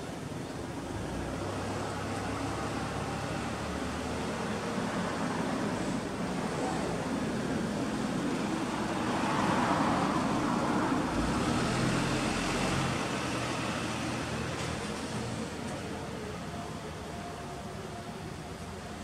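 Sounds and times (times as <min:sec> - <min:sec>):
background traffic noise: 0:00.0 - 0:19.0
vehicle passing by: 0:08.0 - 0:15.6.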